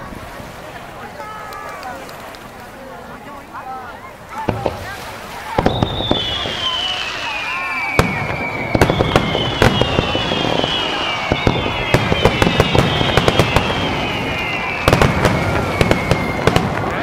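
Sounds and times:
fireworks bursting: 4.4 - 17.0.

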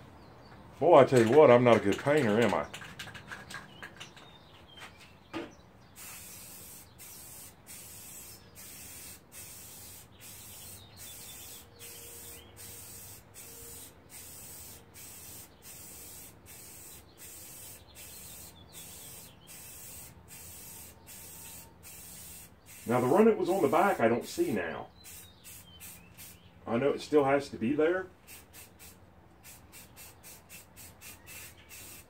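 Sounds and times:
aerosol spray can hissing: 6.0 - 23.8, 25.0 - 26.4, 28.2 - 32.0.

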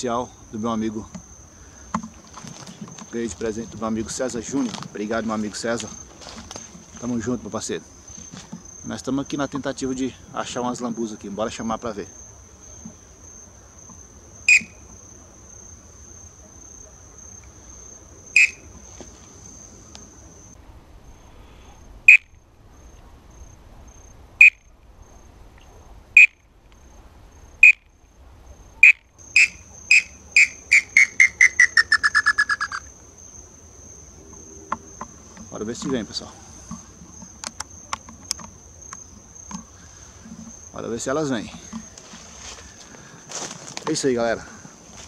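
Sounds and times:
high insect drone: 0.0 - 45.0
bird call whistle: 14.5 - 14.8, 18.4 - 18.7, 22.1 - 22.3, 24.4 - 24.6, 26.2 - 26.4, 27.6 - 27.9, 28.8 - 32.9.

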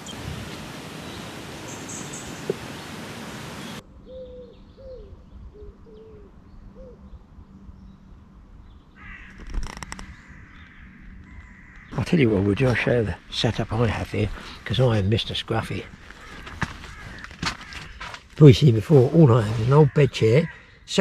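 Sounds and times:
rustling and clicking: 9.2 - 12.8.

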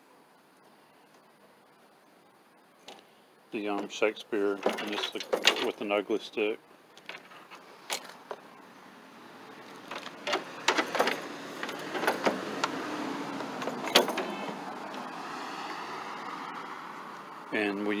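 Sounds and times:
fishing gear clicks and knocks: 4.6 - 5.8, 9.7 - 12.7
passing road vehicle: 7.6 - 17.9.

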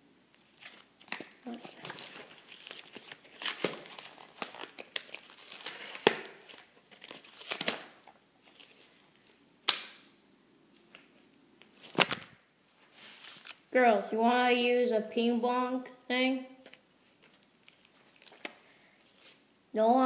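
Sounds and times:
cardboard tearing and crumpling: 0.6 - 9.0
sharp crack: 5.7 - 6.5, 9.6 - 10.2.

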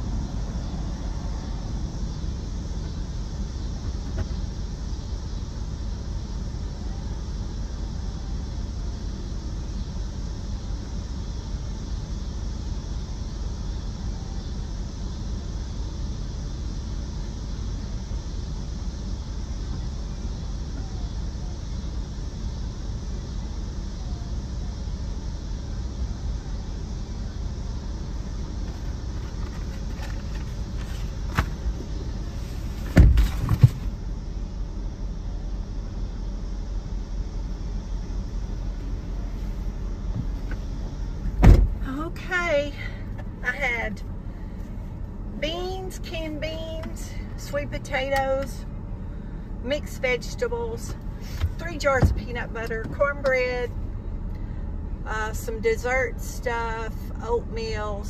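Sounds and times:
car engine rumble inside cabin: 0.0 - 58.0
car door shutting: 4.0 - 4.4, 28.6 - 34.0, 41.2 - 41.8, 51.2 - 53.1.

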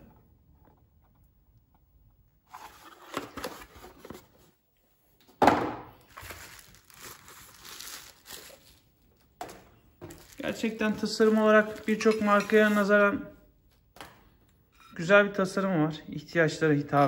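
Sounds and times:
plastic packaging crinkling: 6.0 - 9.4, 10.0 - 12.9.

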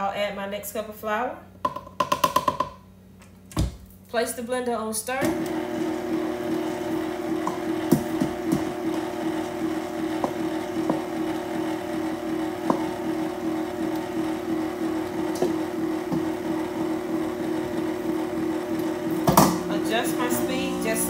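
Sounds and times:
stand mixer motor hum: 5.2 - 21.0.

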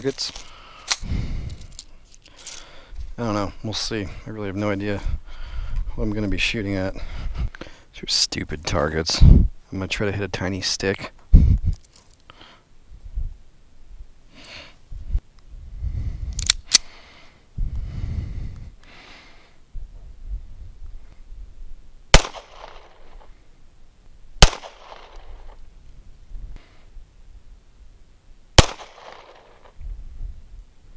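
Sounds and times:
handgun shots with echo: 22.2 - 23.2, 24.4 - 25.3, 28.6 - 29.7.

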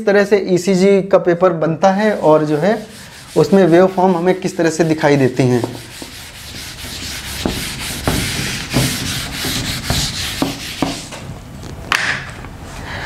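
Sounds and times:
eraser wiping whiteboard: 2.0 - 11.3.

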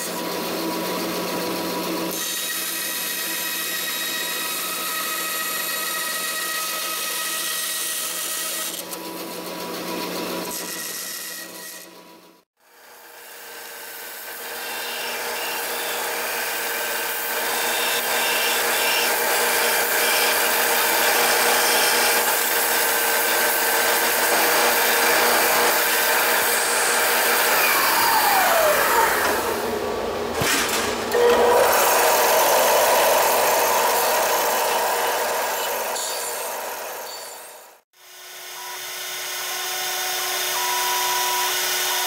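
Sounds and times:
belt sander grinding metal: 14.3 - 30.0, 30.7 - 37.8.

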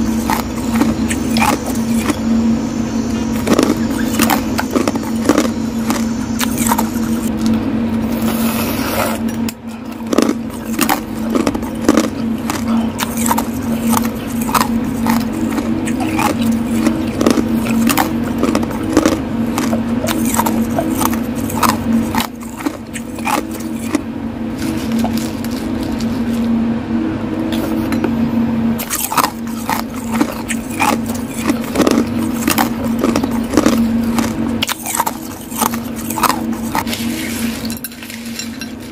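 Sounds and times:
ice crunching and clinking: 0.0 - 2.2, 3.4 - 7.6, 9.9 - 24.0, 28.8 - 38.9
low hum: 0.0 - 38.9.

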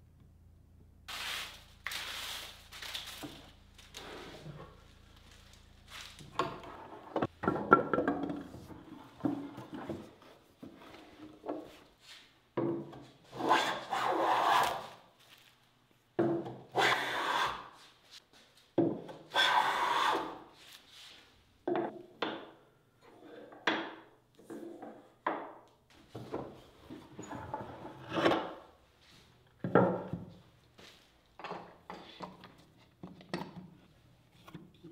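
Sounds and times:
hand plane cutting wood: 13.3 - 14.9, 16.7 - 17.8, 19.3 - 20.5.

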